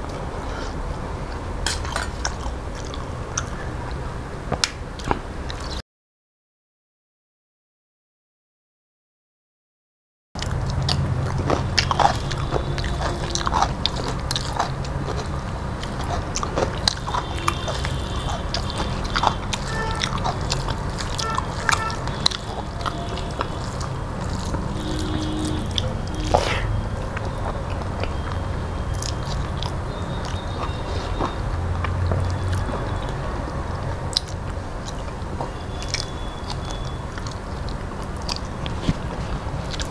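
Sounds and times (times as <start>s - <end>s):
person chewing and eating: 0.0s - 3.6s, 10.4s - 39.9s
steady low hum: 10.4s - 35.8s.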